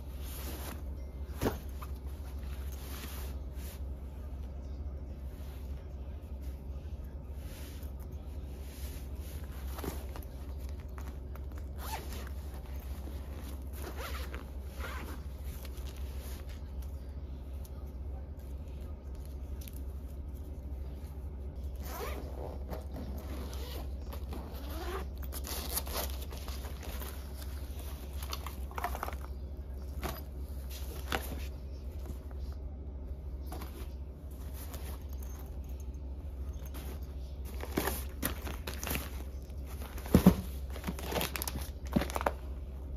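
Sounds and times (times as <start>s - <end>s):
fabric rustling: 0.0s - 4.0s, 7.3s - 16.9s
low steady hum: 0.0s - 42.9s
zippers opening and closing: 11.8s - 12.4s, 21.8s - 26.2s.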